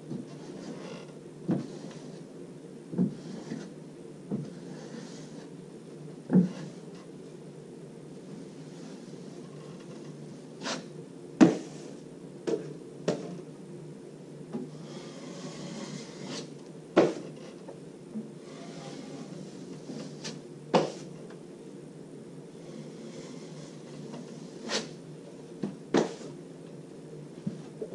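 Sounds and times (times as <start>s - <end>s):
steady low hum: 0.0s - 27.9s
trowel scraping compound: 14.7s - 17.2s.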